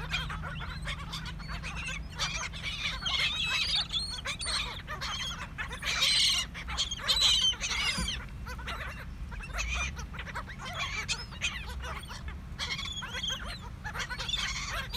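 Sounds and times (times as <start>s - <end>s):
gulls calling and squawking: 0.0s - 14.9s.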